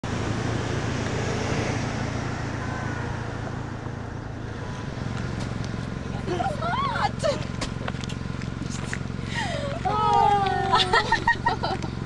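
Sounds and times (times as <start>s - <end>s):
low rumble of vehicle noise: 0.0s - 12.0s.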